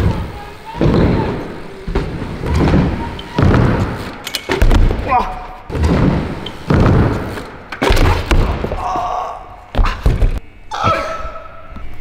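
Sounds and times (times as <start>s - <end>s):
bike landing on plywood ramps: 0.0s - 9.1s.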